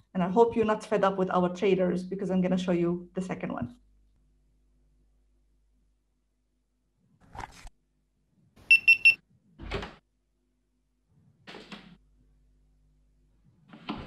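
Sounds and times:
high electronic beeps: 0:08.7 - 0:09.2.

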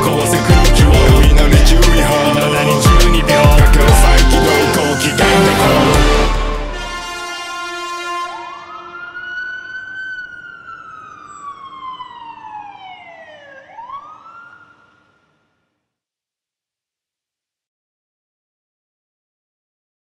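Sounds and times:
song: 0:00.0 - 0:07.9
siren wailing: 0:00.0 - 0:15.4.

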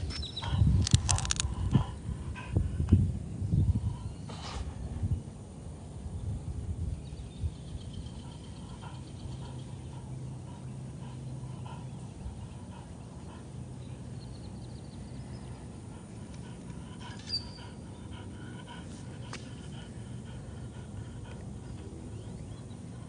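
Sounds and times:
dog panting: 0:00.0 - 0:02.9, 0:07.9 - 0:23.0.

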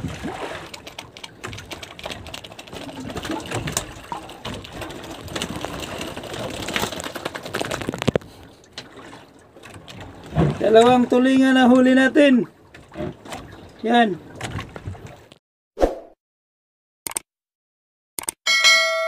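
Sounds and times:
rapid taps and clicks of fish: 0:00.0 - 0:12.0, 0:12.6 - 0:15.4.

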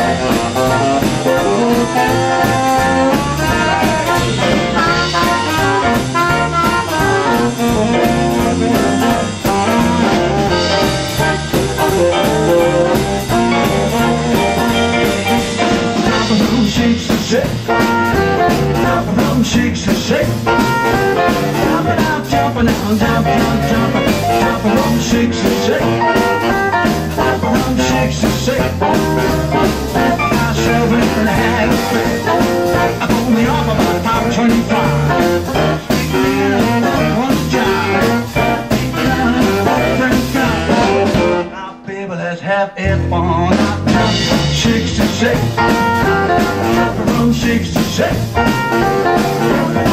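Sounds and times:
baritone saxophone: 0:00.0 - 0:41.6, 0:43.0 - 0:49.9
jump blues band playing: 0:00.0 - 0:41.9, 0:42.8 - 0:49.9
man singing: 0:00.0 - 0:49.9.

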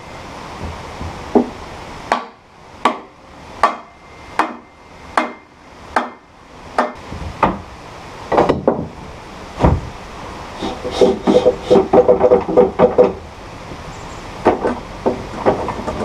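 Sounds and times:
hammer striking metal: 0:02.1 - 0:07.0.

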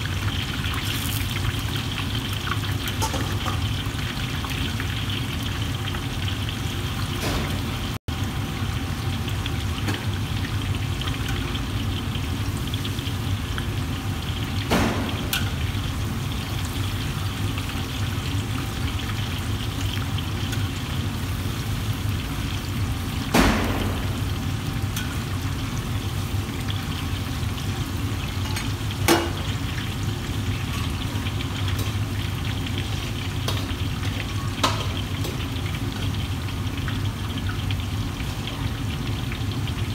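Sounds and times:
oil bubbling and sizzling: 0:00.0 - 0:39.9.

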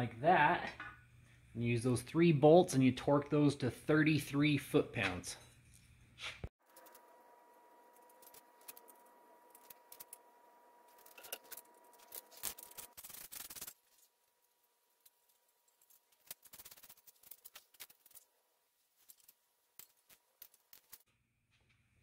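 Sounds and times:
small metallic clicks and rubbing: 0:10.9 - 0:14.0, 0:19.0 - 0:21.1.

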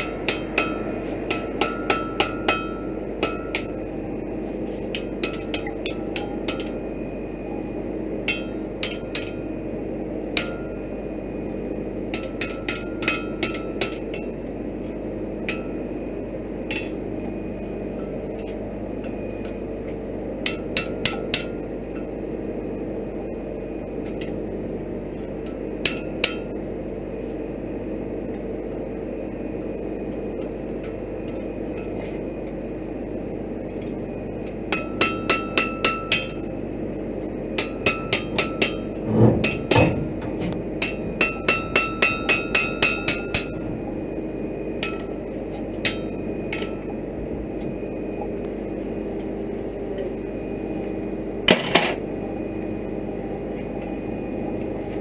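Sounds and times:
hammer striking on anvil: 0:00.0 - 0:03.8, 0:04.9 - 0:06.9, 0:08.3 - 0:09.4, 0:10.4 - 0:10.8, 0:12.1 - 0:14.4, 0:15.5 - 0:15.8, 0:16.7 - 0:17.2, 0:20.4 - 0:21.8, 0:25.8 - 0:26.7, 0:34.7 - 0:36.7, 0:37.6 - 0:43.6, 0:44.8 - 0:45.2, 0:45.8 - 0:46.8
steady hum: 0:00.0 - 0:55.0.

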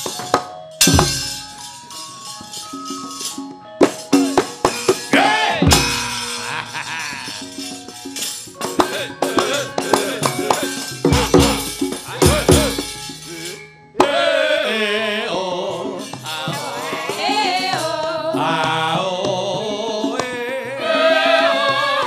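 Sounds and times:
metallic plate rattles and knocks: 0:00.0 - 0:05.1
gamelan music: 0:00.0 - 0:14.2, 0:15.7 - 0:22.0
drum strokes bending in pitch: 0:00.8 - 0:01.7, 0:03.8 - 0:14.2.

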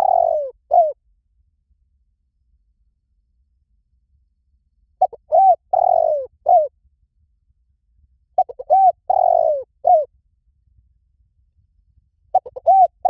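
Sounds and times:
dove cooing: 0:00.0 - 0:01.0, 0:05.0 - 0:06.7, 0:08.4 - 0:10.1, 0:12.3 - 0:13.0.

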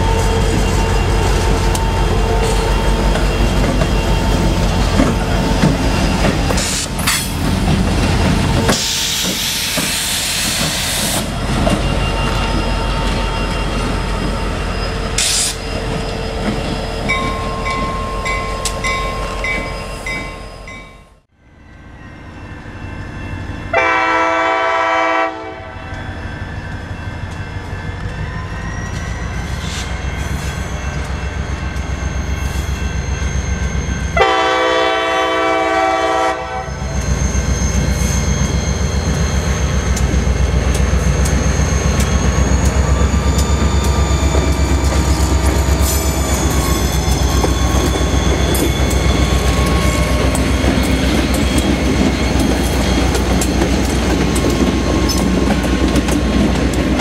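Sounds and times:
train wheel noise: 0:00.0 - 0:21.3, 0:25.9 - 0:57.0
diesel locomotive engine rumble: 0:00.0 - 0:21.4, 0:22.3 - 0:57.0
locomotive air horn: 0:23.7 - 0:25.8, 0:34.2 - 0:36.8.

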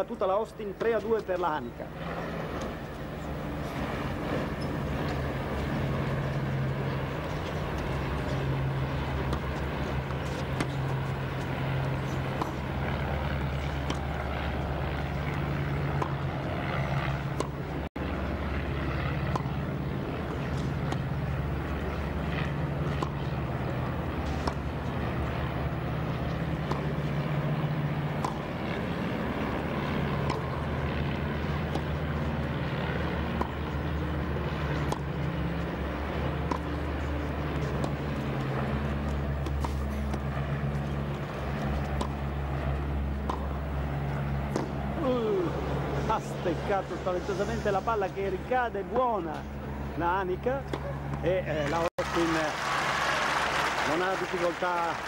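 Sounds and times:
low droning background noise: 0:00.0 - 0:55.0
tennis ball strikes: 0:00.7 - 0:01.2, 0:09.1 - 0:12.7, 0:13.4 - 0:16.2, 0:17.2 - 0:17.6, 0:19.2 - 0:30.8, 0:31.4 - 0:32.4, 0:33.0 - 0:45.0, 0:50.6 - 0:51.3.

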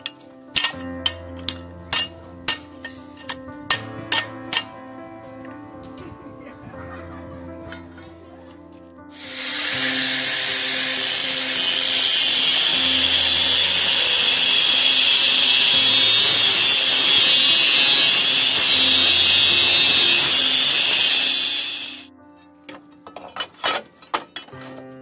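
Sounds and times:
angle grinder cutting steel: 0:09.1 - 0:22.1.

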